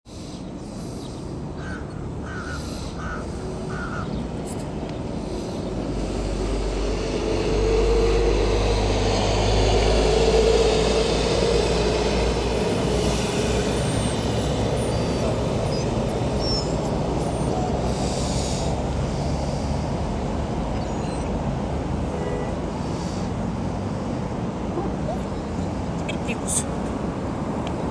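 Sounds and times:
street traffic: 0.0s - 27.9s
heavy vehicle rumble passing: 0.8s - 27.9s
crow cawing: 1.6s - 4.2s.

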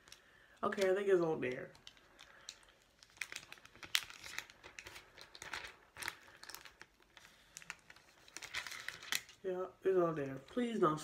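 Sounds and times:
plastic packaging crinkling: 0.0s - 9.5s.

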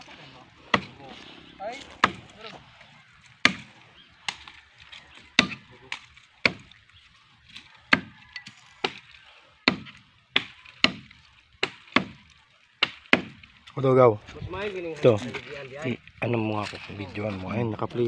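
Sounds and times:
machete chopping tree trunk: 0.7s - 1.0s, 1.9s - 2.4s, 3.4s - 4.6s, 5.2s - 6.8s, 7.5s - 13.5s.

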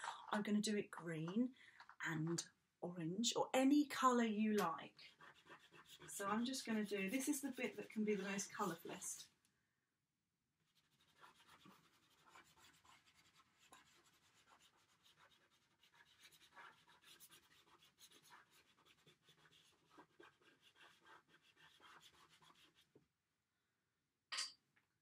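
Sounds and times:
chalk pastel scratching on paper: 5.0s - 9.2s, 10.6s - 23.0s.

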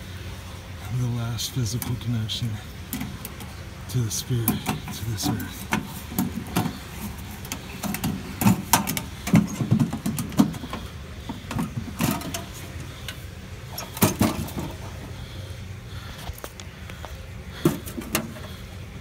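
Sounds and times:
metal box lid clanking: 4.4s - 15.1s, 17.6s - 18.5s.

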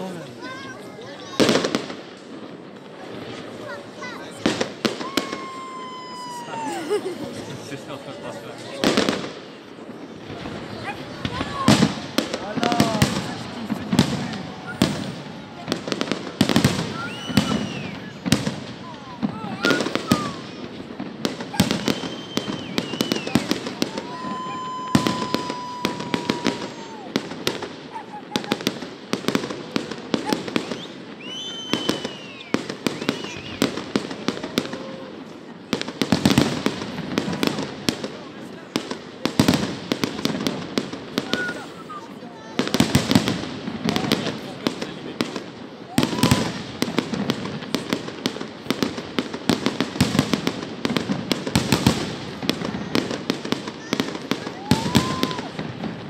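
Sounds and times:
fireworks bangs and crackles: 0.0s - 56.0s
fireworks whistle: 3.4s - 7.0s, 11.2s - 28.9s, 29.8s - 35.2s, 41.2s - 42.1s, 45.9s - 46.6s, 53.8s - 56.0s.

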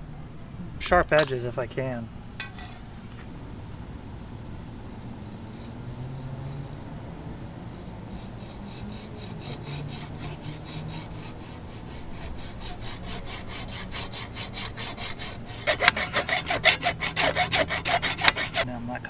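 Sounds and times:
hacksaw cutting metal tube: 7.8s - 18.6s.

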